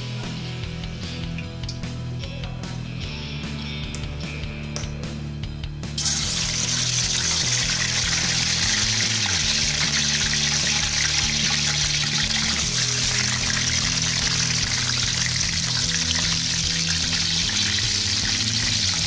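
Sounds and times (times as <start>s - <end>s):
soft background music: 0.0s - 19.0s
fish sizzling in oil: 6.0s - 19.0s.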